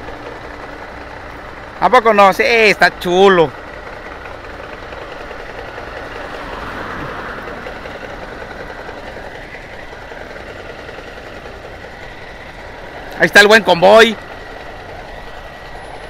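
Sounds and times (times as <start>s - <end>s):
truck engine and road noise: 0.0s - 16.0s.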